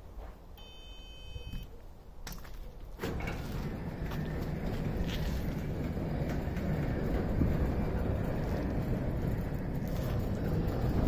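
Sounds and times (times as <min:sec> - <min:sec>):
short electronic beep: 0:00.6 - 0:01.7
sliding gate motor running: 0:03.0 - 0:11.0.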